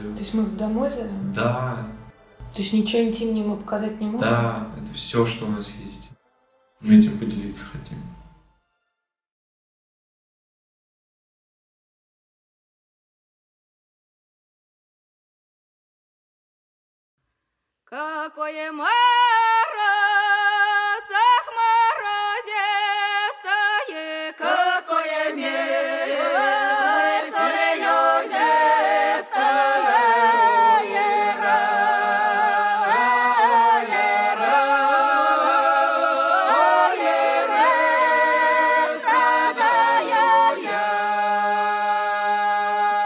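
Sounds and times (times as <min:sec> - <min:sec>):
group of voices singing folk song: 0:19.4 - 0:43.0.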